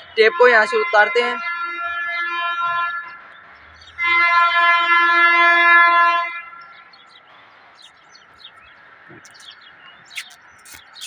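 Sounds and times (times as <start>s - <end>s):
vehicle horn blast: 0.2s - 3.2s, 4.0s - 6.6s.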